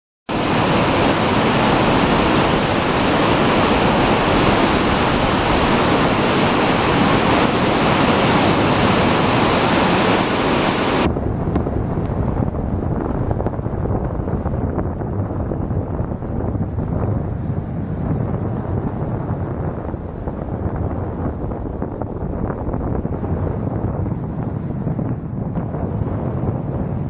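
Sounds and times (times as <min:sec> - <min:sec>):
churning water: 0:00.3 - 0:11.1
ship bow wave rushing: 0:00.3 - 0:11.1
wind buffeting microphone: 0:00.3 - 0:27.0.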